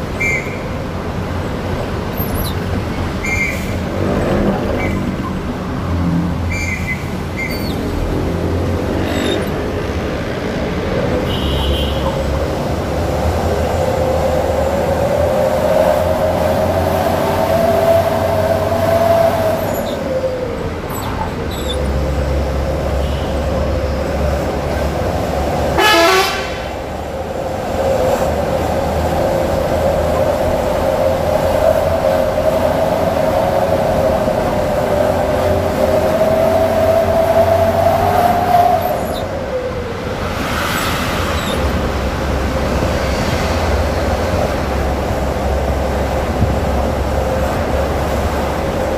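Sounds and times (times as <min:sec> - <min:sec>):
diesel truck engine rumble: 0:00.0 - 0:48.9
truck horn: 0:11.2 - 0:12.4, 0:22.9 - 0:23.7, 0:25.7 - 0:26.9.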